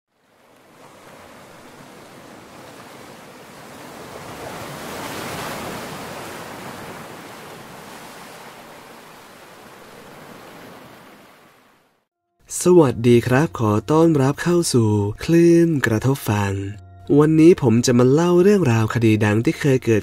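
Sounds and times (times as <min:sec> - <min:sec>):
ocean waves surf: 0:00.1 - 0:12.1.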